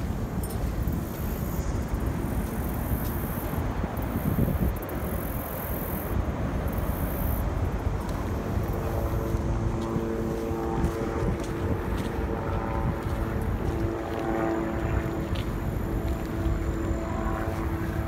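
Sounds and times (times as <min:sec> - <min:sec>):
sustained steady tones: 0:00.0 - 0:18.0
motor vehicle rumble: 0:06.2 - 0:18.0.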